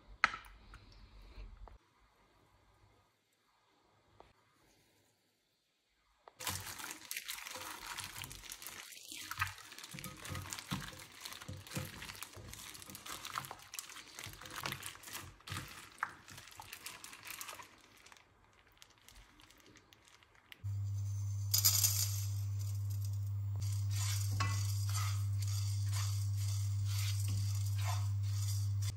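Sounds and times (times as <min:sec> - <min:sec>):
wet crackling of mixing meat: 0:06.4 - 0:20.7.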